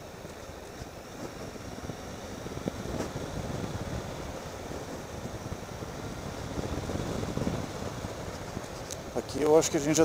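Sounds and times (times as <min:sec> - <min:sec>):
wind noise on microphone: 0:00.0 - 0:10.0.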